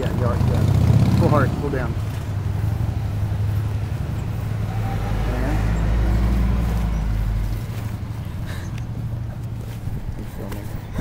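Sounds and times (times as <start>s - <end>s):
wind buffeting the microphone: 5.7s - 11.0s.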